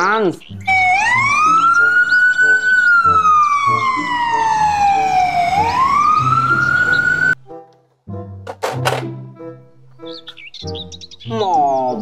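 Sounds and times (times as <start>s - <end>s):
ambulance siren wailing: 0.6s - 7.4s.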